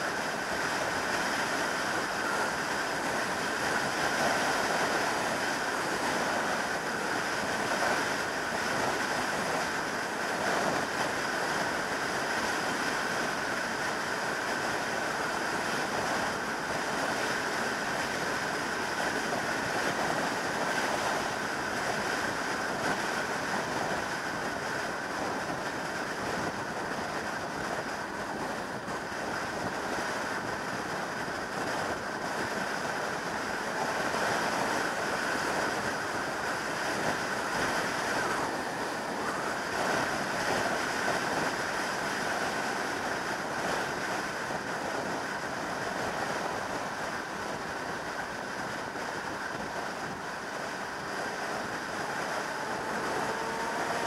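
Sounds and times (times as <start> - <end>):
wind rushing over microphone: 0.0 - 54.0
motorcycle engine running: 52.3 - 54.0.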